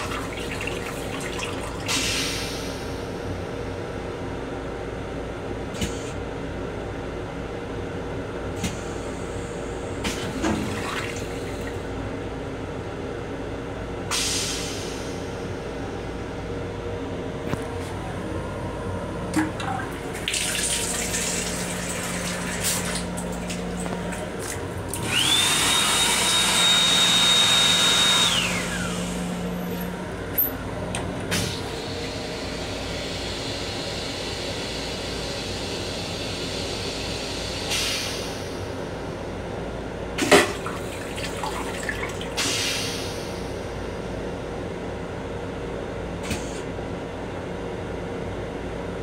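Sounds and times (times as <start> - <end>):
sink water running: 0.0 - 1.8, 19.3 - 26.6
toilet flushing: 0.0 - 3.1, 9.9 - 12.0, 19.2 - 30.5, 40.2 - 43.6
motor whining: 24.8 - 30.0.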